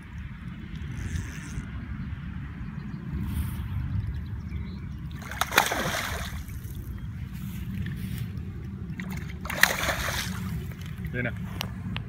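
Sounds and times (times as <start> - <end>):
fish splashing in water: 5.1 - 7.0, 8.9 - 11.1.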